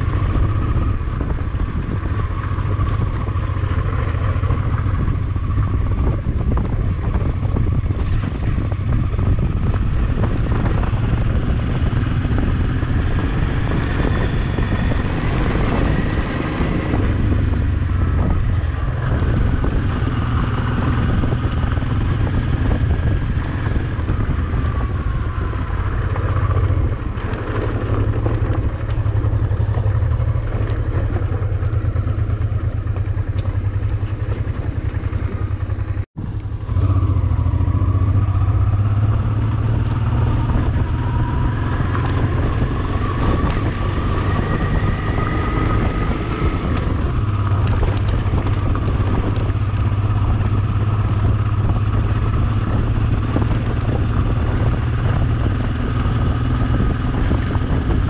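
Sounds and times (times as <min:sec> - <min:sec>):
motorcycle engine running: 0:00.0 - 0:58.0
road and wind noise: 0:00.0 - 0:58.0.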